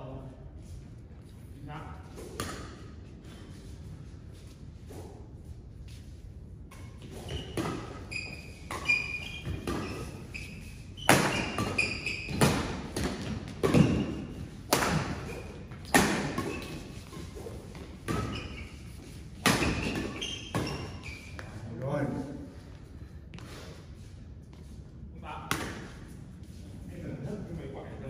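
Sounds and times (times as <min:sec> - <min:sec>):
shoes squeaking on court: 0:06.7 - 0:21.8
racket striking shuttlecock: 0:11.0 - 0:17.2, 0:19.4 - 0:20.8.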